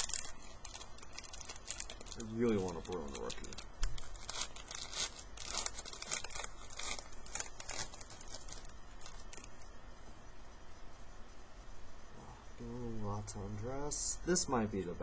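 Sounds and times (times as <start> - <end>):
wrapper tearing and crinkling: 0.0 - 9.8.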